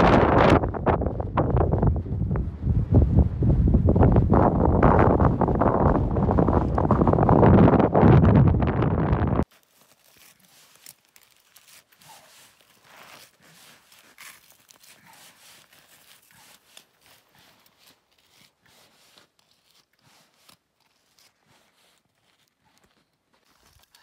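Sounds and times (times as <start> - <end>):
fabric and gear rustling: 9.3 - 24.0
ice scratching and crunching: 9.4 - 24.0.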